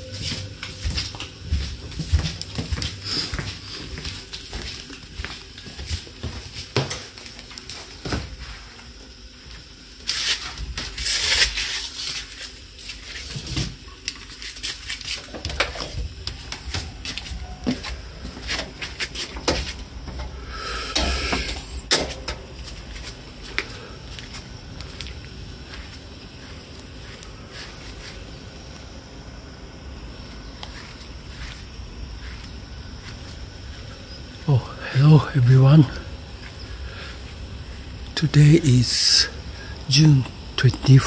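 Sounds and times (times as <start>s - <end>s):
footsteps: 0.0s - 8.9s, 9.5s - 20.4s, 21.0s - 28.4s, 30.2s - 34.5s.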